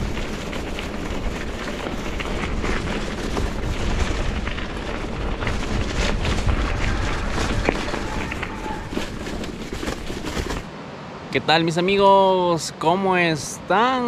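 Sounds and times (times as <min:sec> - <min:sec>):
bike rattling: 0:00.0 - 0:10.7
wind buffeting microphone: 0:00.0 - 0:10.8.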